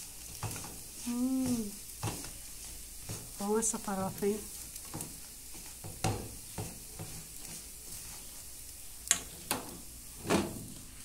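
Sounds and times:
faint sizzle of frying: 0.0s - 11.0s
spatula stirring crumbs in pan: 0.0s - 11.0s
spatula knocking against pan: 5.8s - 7.2s.

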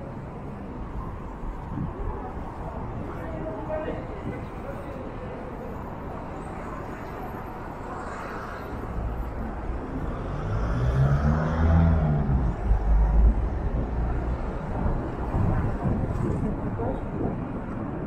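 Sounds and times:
background traffic noise: 0.0s - 18.0s
vehicle passing close by: 10.0s - 14.2s.

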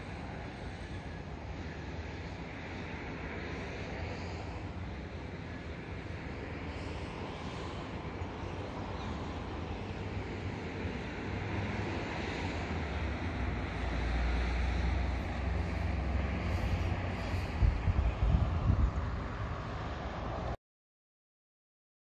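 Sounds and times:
outdoor rumble: 0.0s - 20.6s
wind buffeting microphone: 3.8s - 20.5s.

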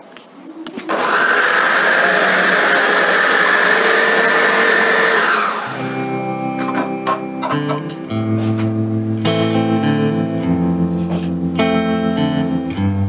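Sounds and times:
food processor running: 0.9s - 6.2s.

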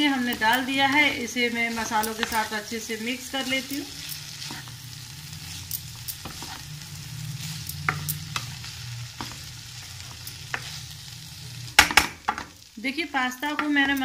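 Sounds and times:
food sizzling in frying pan: 0.0s - 14.0s
spatula scraping and tapping pan: 0.2s - 2.5s, 3.5s - 4.8s, 5.5s - 6.7s, 7.4s - 11.0s, 11.7s - 12.6s, 13.4s - 14.0s.

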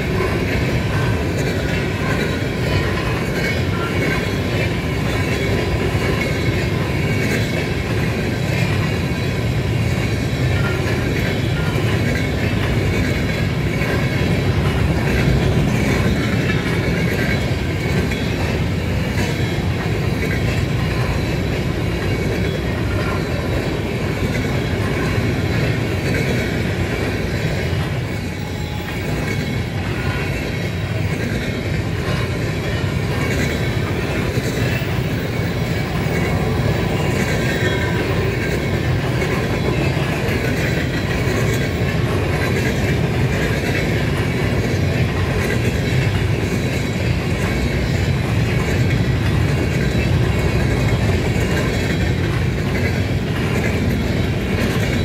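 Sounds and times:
steel wheels rumbling on rail: 0.0s - 55.0s.

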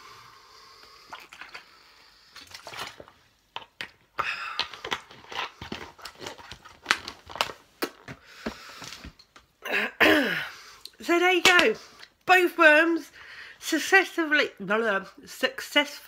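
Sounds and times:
chewing and swallowing: 1.0s - 1.7s, 2.4s - 8.0s
plastic bottle crinkling: 1.1s - 1.8s, 2.4s - 9.5s.

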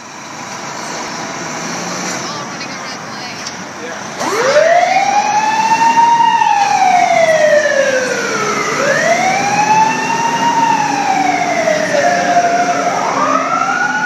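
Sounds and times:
fire truck siren wailing: 1.1s - 14.0s.

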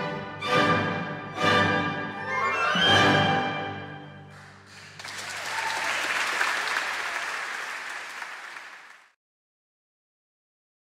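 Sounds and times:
orchestra chord: 0.0s - 4.7s
applause: 4.3s - 9.2s.

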